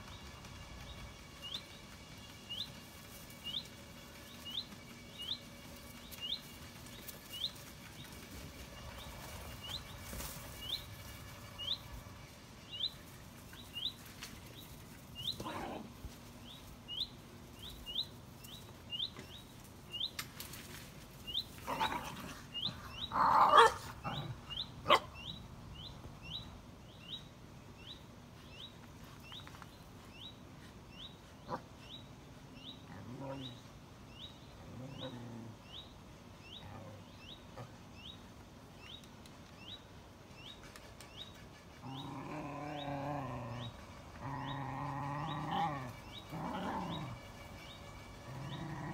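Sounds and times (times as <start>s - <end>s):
bird chirping: 0.0s - 15.8s.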